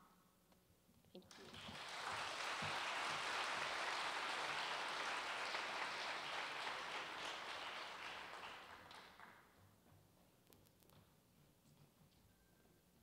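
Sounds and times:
audience applauding: 1.3 - 9.4.

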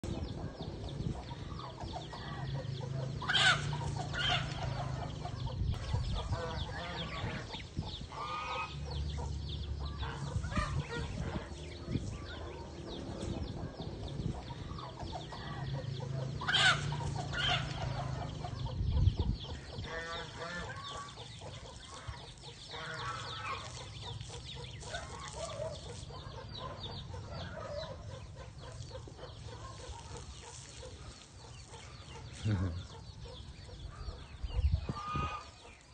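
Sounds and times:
hen clucking: 0.0 - 35.9
loud sharp hen calls: 3.2 - 5.1, 16.4 - 18.8, 34.8 - 35.6.

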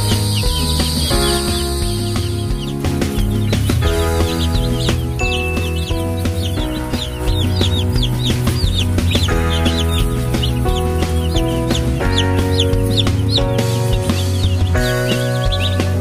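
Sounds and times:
background music: 0.0 - 16.0
chicks peeping: 0.0 - 16.0.

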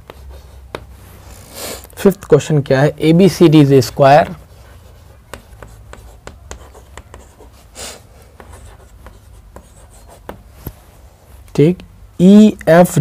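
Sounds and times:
chalk writing on a chalkboard: 0.0 - 1.7, 4.2 - 10.8.

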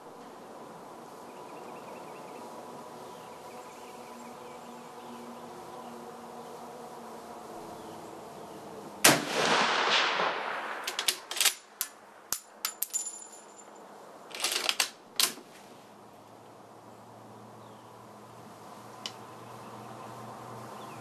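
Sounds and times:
rifle shot: 9.0 - 11.6.

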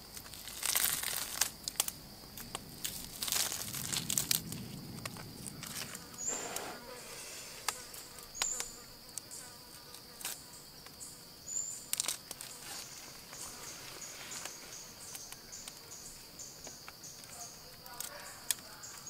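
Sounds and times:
insects droning: 0.0 - 19.0.

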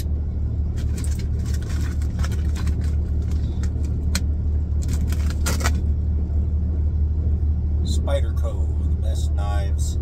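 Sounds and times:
diesel engine rumble: 0.0 - 10.0.

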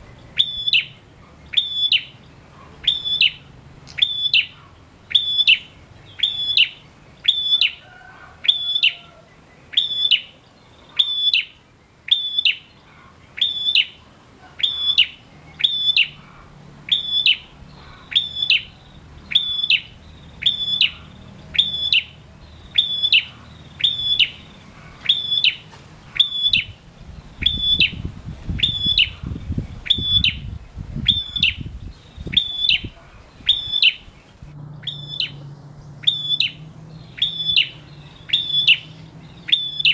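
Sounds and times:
songbird calling sharp high note: 2.8 - 7.8, 8.5 - 12.8, 13.4 - 14.0, 16.9 - 26.8, 28.6 - 34.1, 34.8 - 35.4, 36.0 - 39.9.

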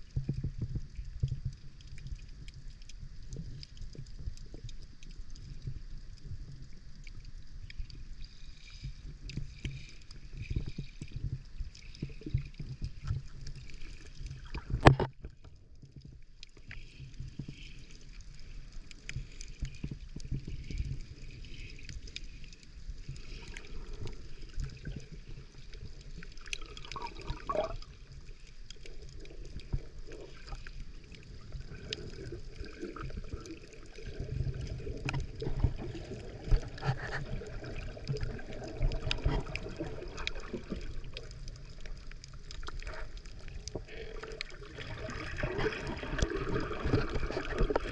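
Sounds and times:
underwater rumbling water: 0.0 - 47.9
bubbly gurgle: 10.3 - 16.7, 22.9 - 47.9
underwater clicks: 12.2 - 16.7, 45.3 - 47.9.

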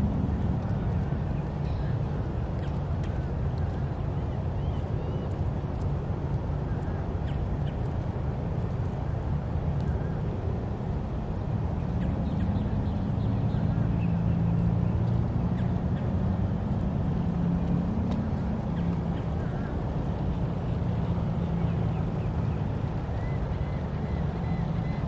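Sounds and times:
low steady rumble: 0.0 - 25.0.

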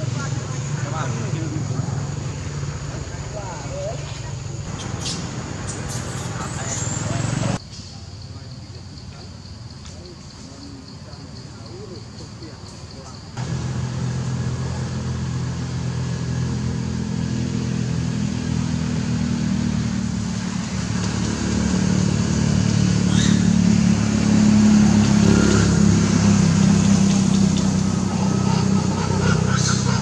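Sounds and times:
engine humming: 0.0 - 7.6, 11.6 - 30.0.

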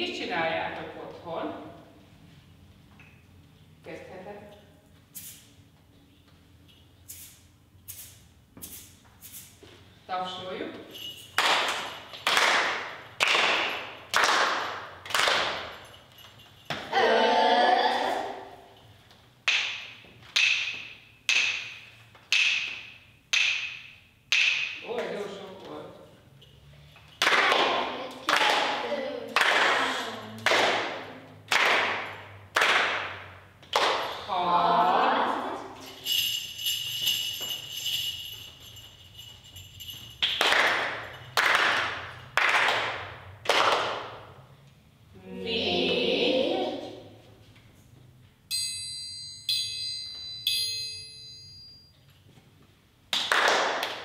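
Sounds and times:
hand percussion strikes ringing: 35.8 - 42.2, 48.5 - 52.0
sharp hand percussion strikes: 48.5 - 51.9.

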